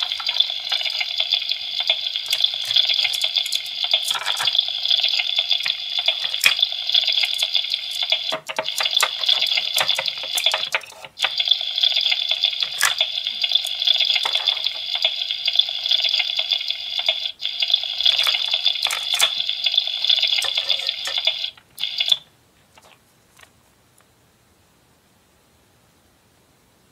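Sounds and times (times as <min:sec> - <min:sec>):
plastic toy pieces clicking: 0:00.0 - 0:16.5, 0:17.7 - 0:22.2
electronic sizzling from toy speaker: 0:00.0 - 0:23.0.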